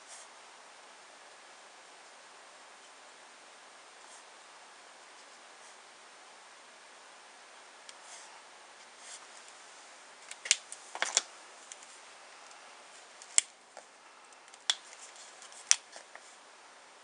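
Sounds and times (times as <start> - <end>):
marker caps clicking: 14.5 - 16.2.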